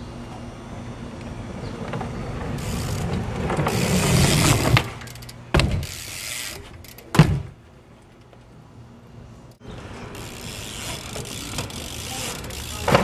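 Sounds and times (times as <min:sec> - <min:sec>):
bike tyres rolling on concrete: 0:01.1 - 0:08.7, 0:09.5 - 0:13.0
bike knocking on concrete: 0:02.8 - 0:06.1, 0:06.9 - 0:07.6, 0:10.2 - 0:13.0.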